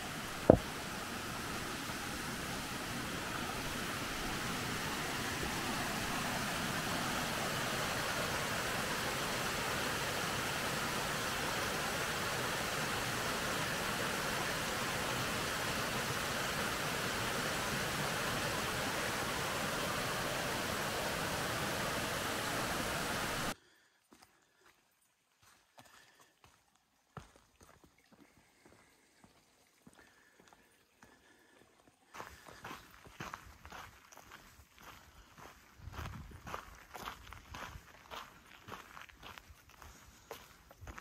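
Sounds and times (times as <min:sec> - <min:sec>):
creek rushing over boulders: 0:00.0 - 0:23.6.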